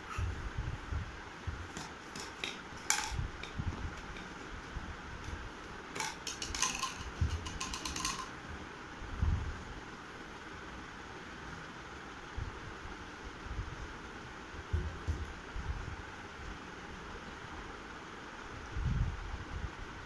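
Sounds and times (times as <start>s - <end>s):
plastic rings clattering on stone: 1.8s - 4.3s, 6.0s - 8.3s.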